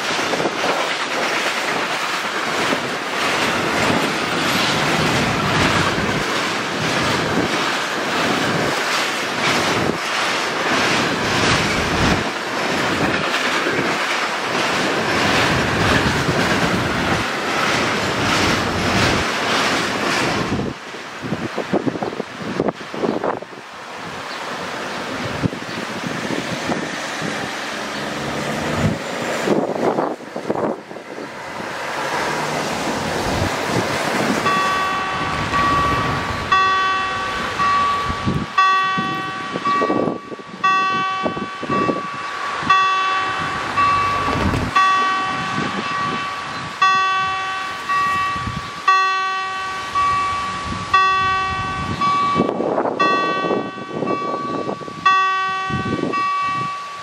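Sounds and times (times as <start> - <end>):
steady rushing noise: 0.0 - 56.3
level-crossing warning bell ringing: 34.4 - 57.0.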